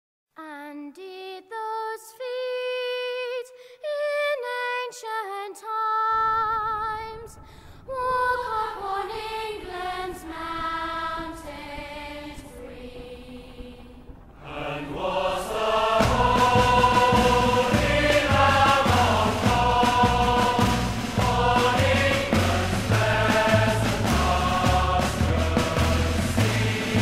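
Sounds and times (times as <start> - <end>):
woman singing slow melody: 0.4 - 9.2
low steady noise: 6.5 - 27.0.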